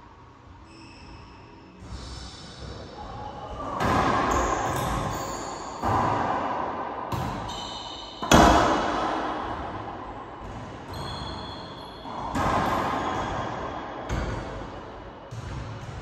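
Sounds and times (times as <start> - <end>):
racquetball smacks echoing: 8.2 - 11.0, 12.0 - 16.0.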